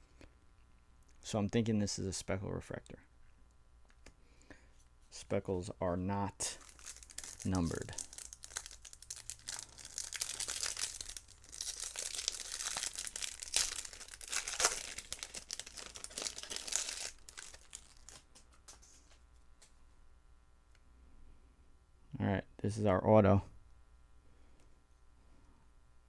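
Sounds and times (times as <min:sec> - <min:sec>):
foil pack tearing and crinkling: 0:06.5 - 0:18.9.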